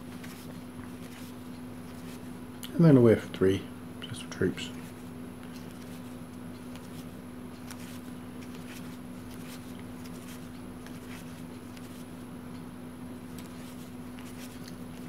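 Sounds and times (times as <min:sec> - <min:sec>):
playing cards clicking and sliding: 0:00.0 - 0:02.3, 0:04.7 - 0:12.2, 0:13.2 - 0:15.0
steady low hum: 0:00.0 - 0:15.0.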